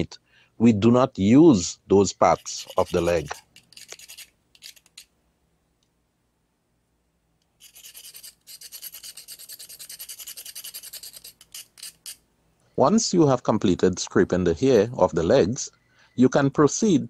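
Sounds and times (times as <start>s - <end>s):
knife blade scraping crab legs: 2.2s - 5.1s, 7.6s - 12.2s.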